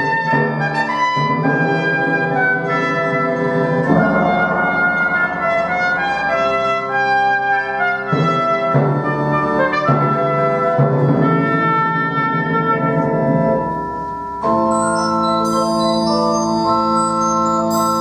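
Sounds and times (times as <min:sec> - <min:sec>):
trumpet: 0:00.0 - 0:18.0
pipe organ: 0:12.8 - 0:18.0.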